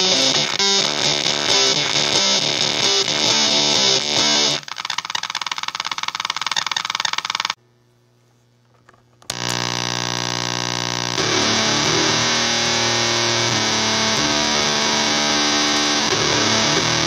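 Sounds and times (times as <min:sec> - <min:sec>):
low-pitched guitar drone: 0:00.0 - 0:04.6, 0:09.3 - 0:17.0.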